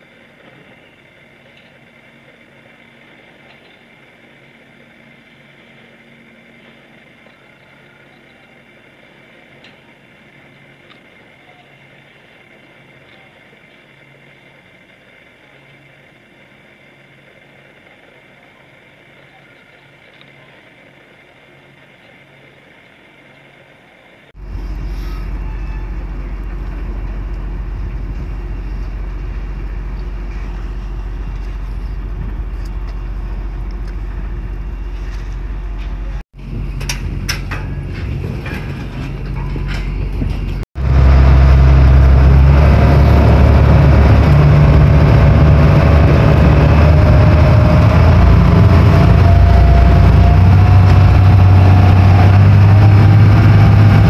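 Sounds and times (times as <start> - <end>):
ferry engine running: 0.0 - 54.0
steady low rumble: 24.3 - 54.0.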